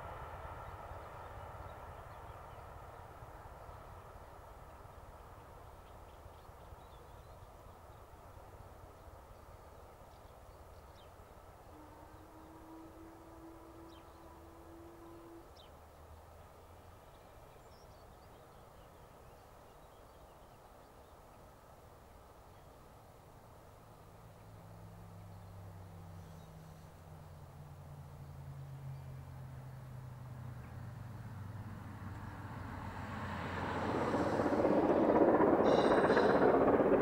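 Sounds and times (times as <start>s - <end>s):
distant steam locomotive rumble: 0.0s - 37.0s
steam whistle: 11.6s - 15.7s
faint bird chirps: 25.2s - 27.3s.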